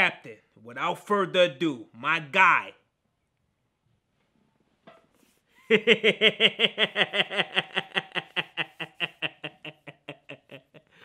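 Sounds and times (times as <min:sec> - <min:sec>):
man laughing hard: 0:05.6 - 0:11.0.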